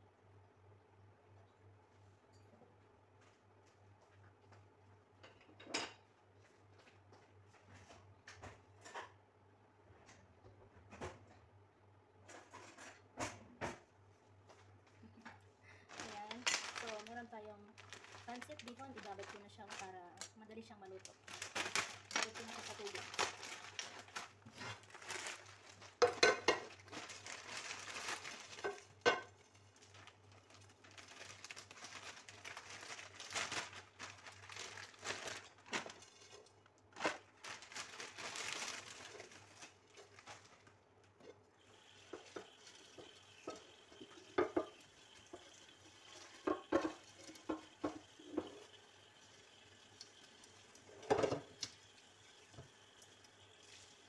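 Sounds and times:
plastic bag crinkling: 15.8s - 41.1s
dishes and utensils clattering: 25.8s - 27.4s.

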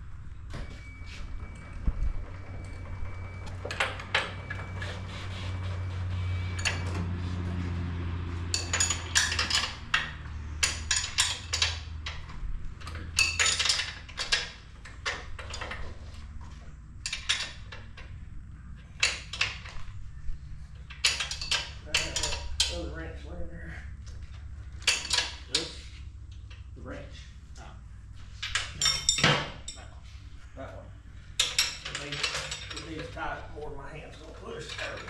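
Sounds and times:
wrench clinking on bolts: 8.5s - 12.2s, 12.8s - 15.9s, 17.0s - 18.2s, 20.8s - 22.9s, 24.8s - 26.6s, 28.4s - 29.9s, 31.4s - 33.2s.

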